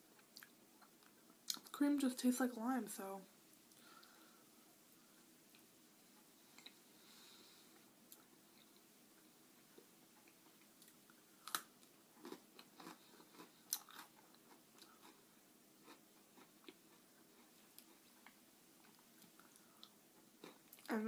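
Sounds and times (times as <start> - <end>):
crunching and chewing cookie: 7.7 - 21.0.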